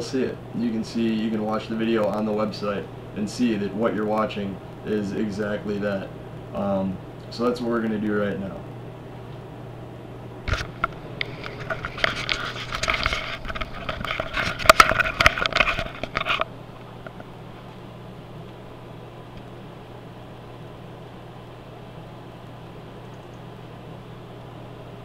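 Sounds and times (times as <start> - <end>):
steady low hum: 0.0 - 25.0
webcam handling noise: 10.5 - 17.3.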